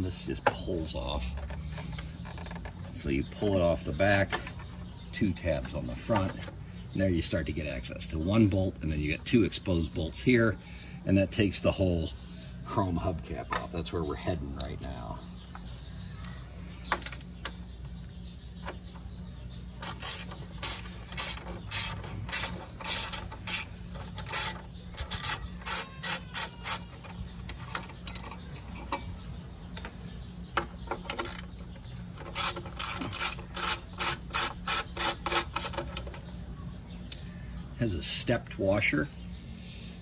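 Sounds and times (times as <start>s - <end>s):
ratchet wrench clicking: 19.8s - 29.1s, 32.2s - 35.8s.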